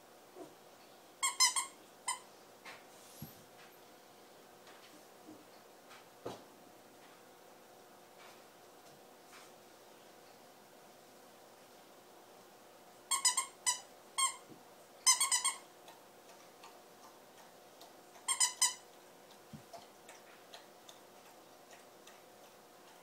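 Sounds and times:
dog toy squeaking: 1.2 - 2.2, 13.1 - 14.4, 15.1 - 15.6, 18.3 - 18.8.

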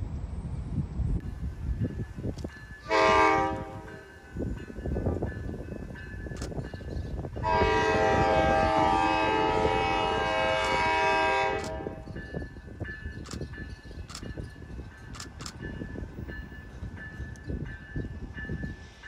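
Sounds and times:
train horn blast: 2.9 - 4.1, 7.4 - 12.1.

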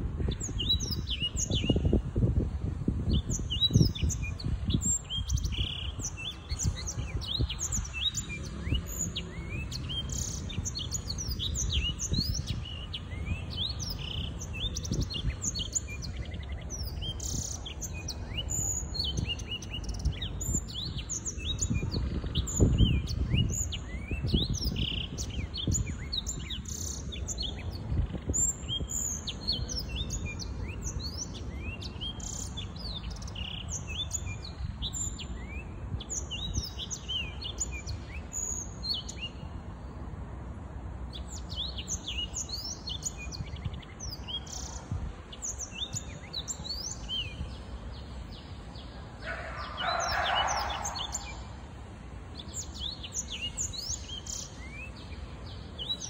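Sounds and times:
canary singing trills: 48.2 - 51.6.

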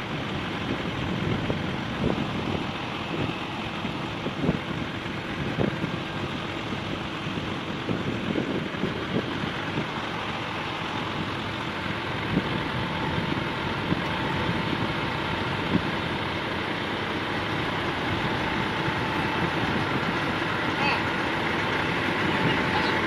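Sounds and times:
road noise: 0.0 - 23.0
truck diesel engine running: 0.0 - 23.0.

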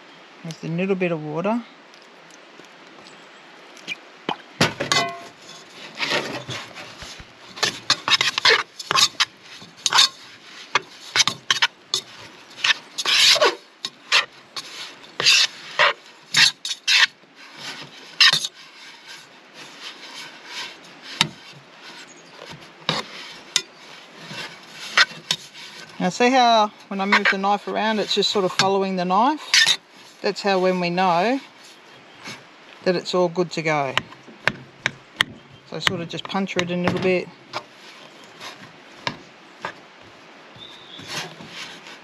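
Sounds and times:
knife scraping metal pot: 4.9 - 31.4.

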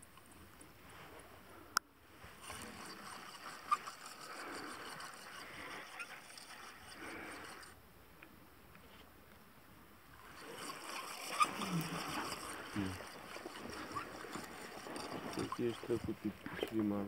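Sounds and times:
fishing reel whirring: 2.3 - 7.8, 10.2 - 17.0.

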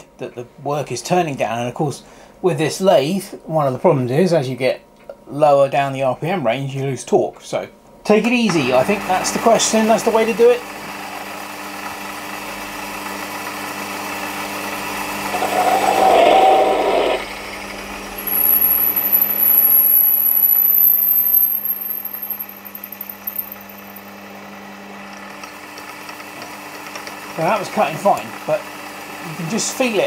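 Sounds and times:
thin high squeal: 15.2 - 17.3, 18.1 - 22.6
metal lathe running: 18.0 - 23.8
drill boring into metal: 18.1 - 22.9.

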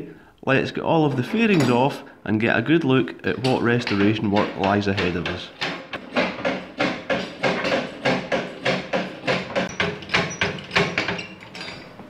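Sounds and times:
lift pump metallic clanks: 3.3 - 12.0.

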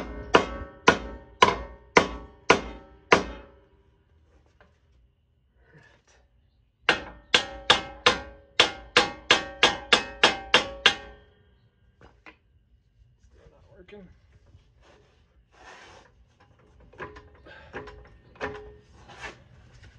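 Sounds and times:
hammer striking metal: 0.0 - 3.6, 6.9 - 11.3.

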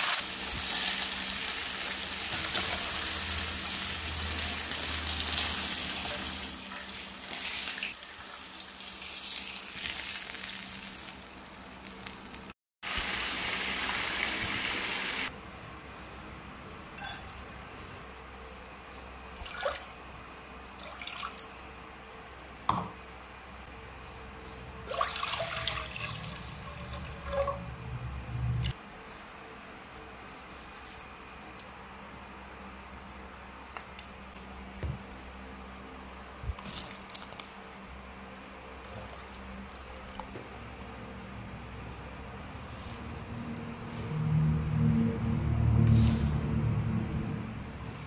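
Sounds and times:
fish sizzling in a wok: 0.0 - 15.3
water poured into a pot: 24.9 - 27.6.

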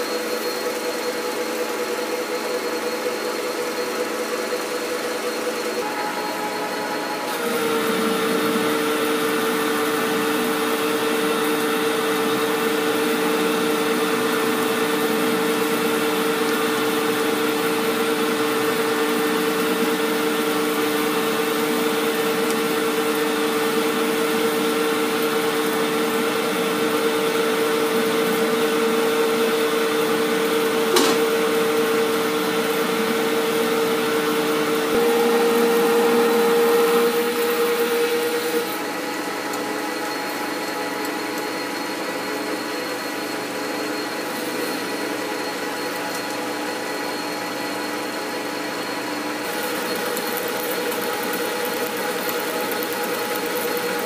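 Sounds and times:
metal lathe cutting steel: 3.0 - 15.6, 34.2 - 42.7.

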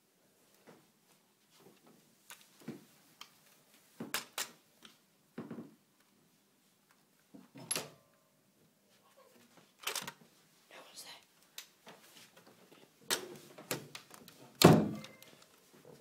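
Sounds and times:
faint squeak: 14.9 - 15.4.

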